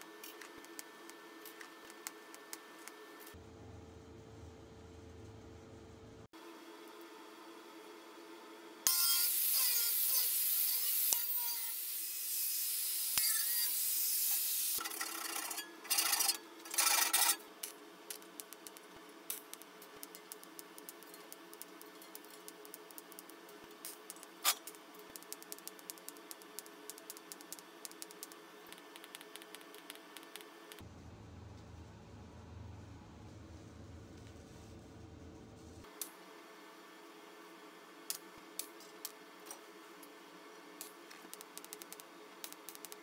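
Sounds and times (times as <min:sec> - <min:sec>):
arc welding hissing crackle: 0:08.9 - 0:14.8, 0:16.1 - 0:30.8.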